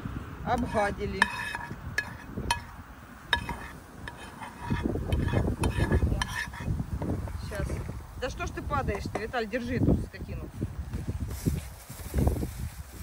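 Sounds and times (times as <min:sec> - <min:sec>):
wind rumble on microphone: 0:00.0 - 0:13.0
utensil scraping in frying pan: 0:00.5 - 0:07.0.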